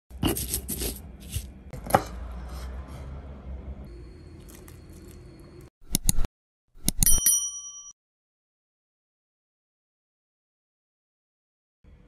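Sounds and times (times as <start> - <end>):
kitchen sound: 0.1 - 7.9.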